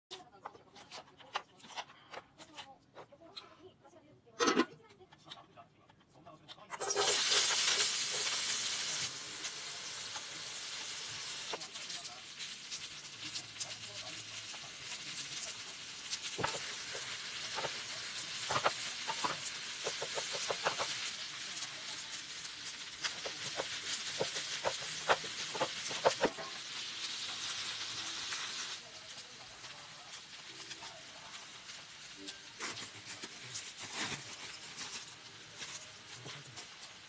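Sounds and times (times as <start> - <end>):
rice sizzling in a pan: 6.7 - 37.0
utensils tapping and scraping pan: 11.4 - 27.5.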